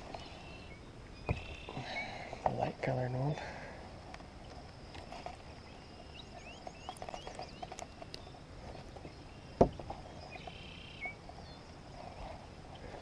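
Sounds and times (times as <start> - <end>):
small birds chirping: 0.0 - 13.0.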